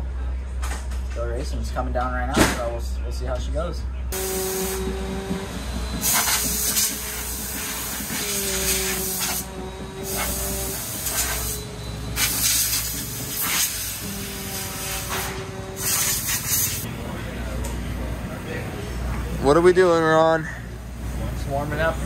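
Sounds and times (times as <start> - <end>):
steady hum: 3.9 - 22.0
spray hissing: 4.2 - 16.9.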